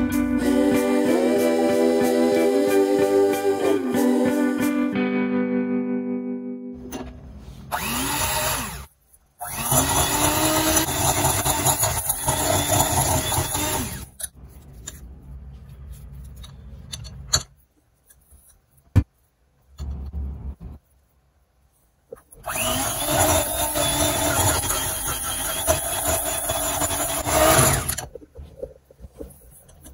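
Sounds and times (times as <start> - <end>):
electric hand mixer whisking: 7.8 - 14.1, 22.5 - 28.0.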